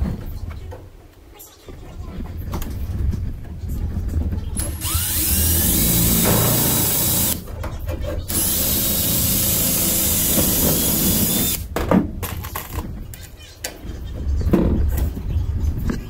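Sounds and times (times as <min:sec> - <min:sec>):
cordless drill boring through metal: 0:04.6 - 0:07.4, 0:08.3 - 0:11.6.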